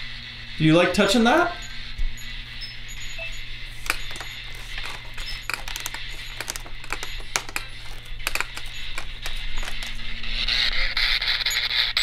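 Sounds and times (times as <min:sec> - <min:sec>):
low electrical hum: 0:00.0 - 0:12.0
sharp clicks and ticks: 0:02.6 - 0:10.2.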